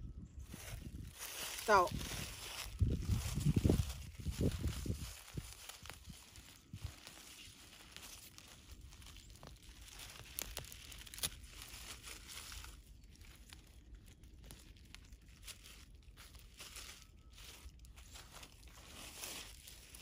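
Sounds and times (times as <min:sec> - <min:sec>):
rustling and crackling of dry leaves: 0:00.4 - 0:20.0.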